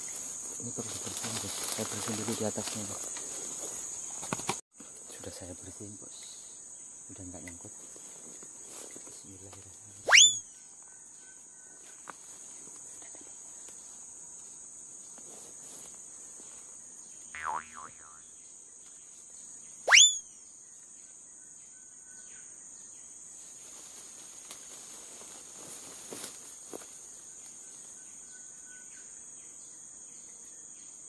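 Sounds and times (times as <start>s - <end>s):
insects droning: 0.0s - 31.0s
upward sweeping whistle: 10.1s - 10.4s, 19.9s - 20.2s
wavering call: 10.1s - 10.4s, 17.4s - 18.2s, 19.9s - 20.2s.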